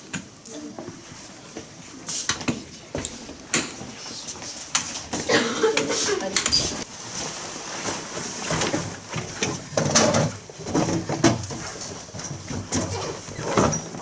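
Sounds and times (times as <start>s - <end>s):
chairs and desks scraping: 2.1s - 14.0s
bags and coats rustling: 3.2s - 14.0s.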